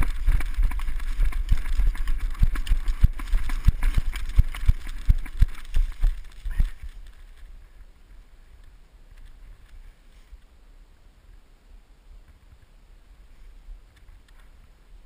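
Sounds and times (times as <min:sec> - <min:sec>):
running footsteps in dry leaves: 0:00.0 - 0:07.7.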